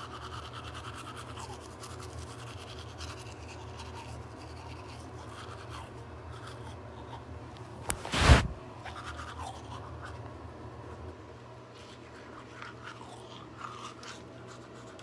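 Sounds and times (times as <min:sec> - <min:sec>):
toothbrush scrubbing teeth: 0:00.0 - 0:07.2, 0:08.9 - 0:10.2, 0:11.7 - 0:15.0.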